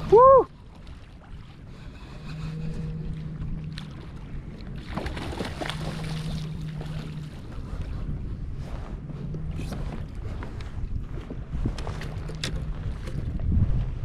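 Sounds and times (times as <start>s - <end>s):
water lapping against kayak hull: 0.0s - 14.0s
wind on microphone: 0.0s - 14.0s
fish thrashing and splashing: 4.8s - 7.4s.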